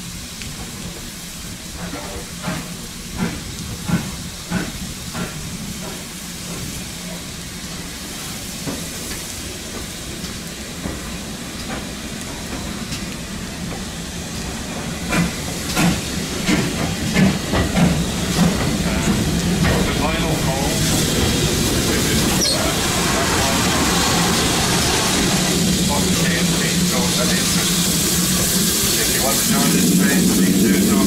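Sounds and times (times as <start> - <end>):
steam hissing: 0.0 - 31.0
locomotive wheels clanking: 8.6 - 31.0.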